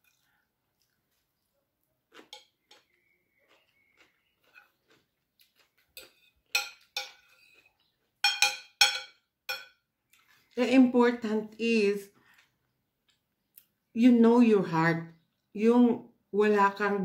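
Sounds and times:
cutlery clinking on plate: 0:06.0 - 0:09.8.

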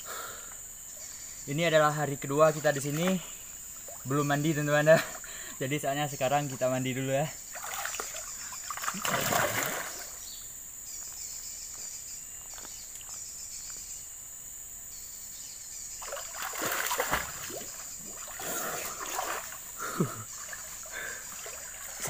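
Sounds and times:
water splashing: 0:07.5 - 0:10.2, 0:16.0 - 0:22.0.

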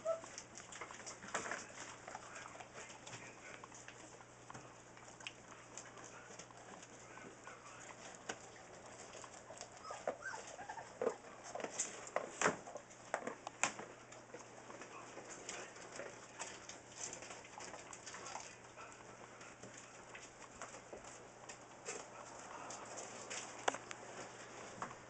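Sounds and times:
puppies whimpering: 0:00.0 - 0:01.2, 0:09.0 - 0:11.2.

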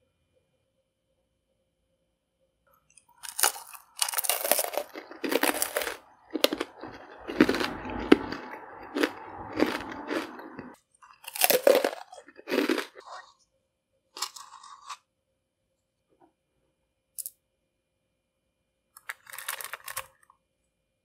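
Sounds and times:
candy-coated pretzel crunching: 0:03.1 - 0:13.4, 0:14.2 - 0:15.0, 0:19.0 - 0:20.2.

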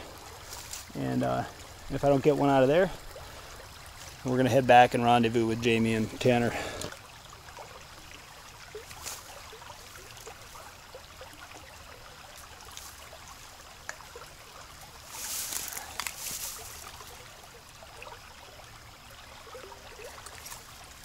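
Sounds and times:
creek water trickling: 0:00.0 - 0:21.0
swishing rustle: 0:15.1 - 0:16.9.

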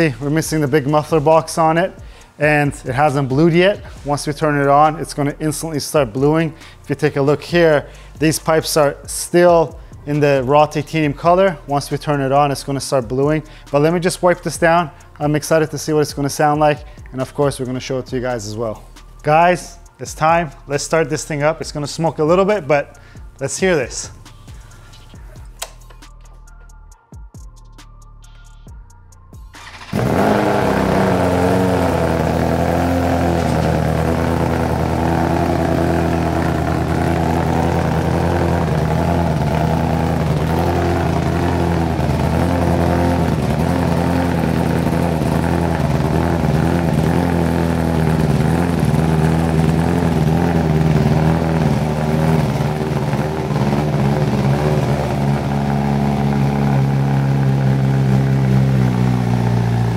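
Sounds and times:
motorcycle engine starting and idling: 0:29.5 - 0:59.9.

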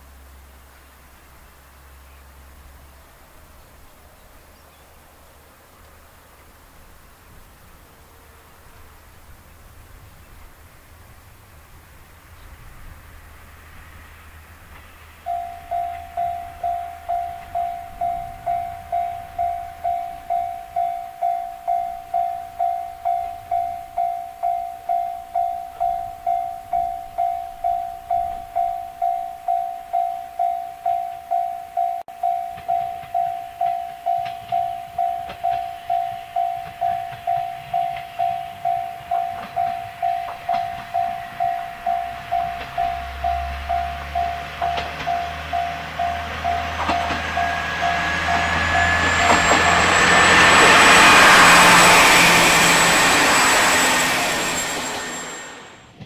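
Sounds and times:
diesel railcar rumble: 0:00.0 - 0:56.0
level-crossing electronic bell ringing: 0:15.2 - 0:55.8.

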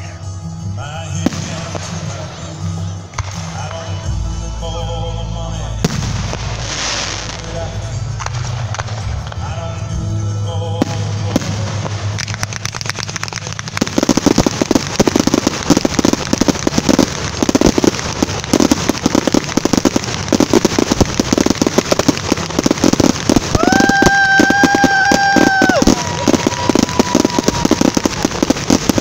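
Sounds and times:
fireworks crackling: 0:00.0 - 0:29.0
fireworks shell bursts: 0:10.9 - 0:29.0.

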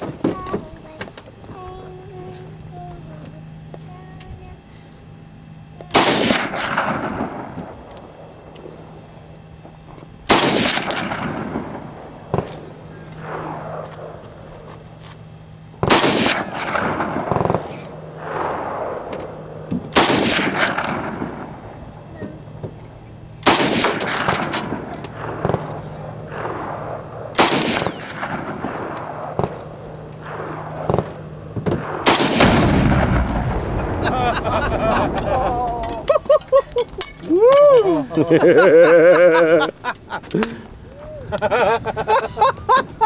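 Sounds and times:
single gunshot cracks: 0:05.9 - 0:07.7, 0:10.3 - 0:12.6, 0:15.8 - 0:19.3, 0:19.9 - 0:21.5, 0:23.4 - 0:29.6, 0:30.2 - 0:33.5
machine gun bursts echoing: 0:05.9 - 0:08.2, 0:10.2 - 0:14.7, 0:15.8 - 0:22.6, 0:23.4 - 0:35.6
deep explosion blast: 0:26.3 - 0:29.6, 0:30.2 - 0:36.0.

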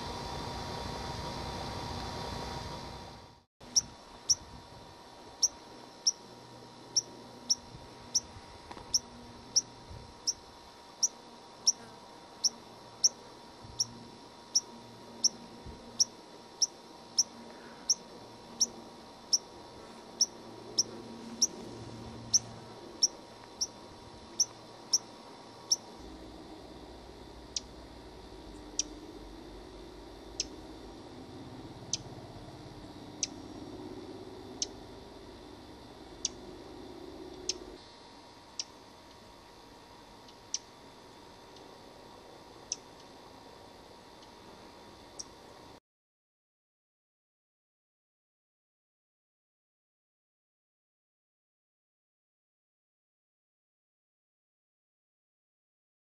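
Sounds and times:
sparrow chip calls: 0:03.7 - 0:04.5, 0:06.9 - 0:08.3, 0:22.2 - 0:25.1, 0:30.3 - 0:30.6.

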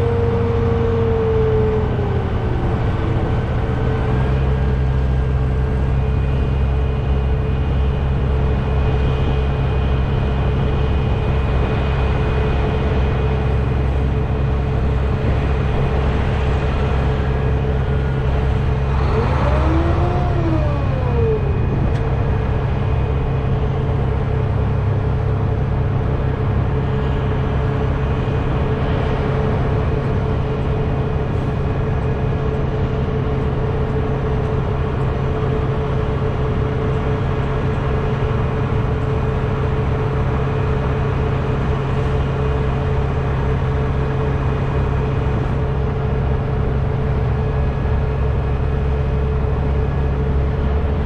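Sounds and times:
rising and falling whine: 0:00.0 - 0:43.0
diesel truck engine idling: 0:00.0 - 0:51.0.

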